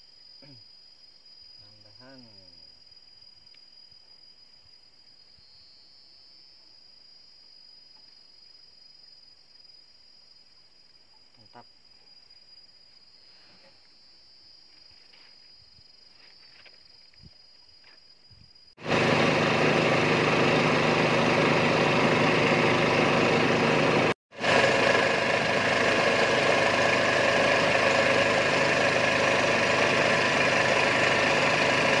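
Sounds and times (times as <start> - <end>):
boat motor running: 18.8 - 32.0.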